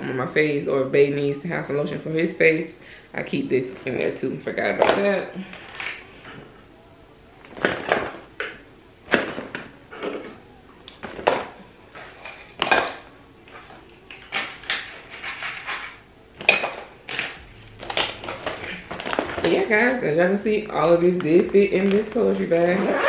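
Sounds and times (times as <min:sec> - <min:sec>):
plastic bottles clacking and rattling: 0:10.9 - 0:20.0.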